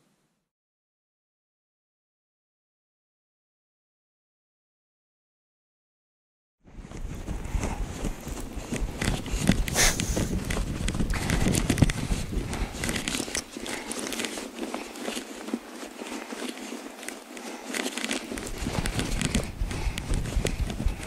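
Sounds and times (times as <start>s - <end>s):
footsteps crunching in snow: 6.7s - 21.0s.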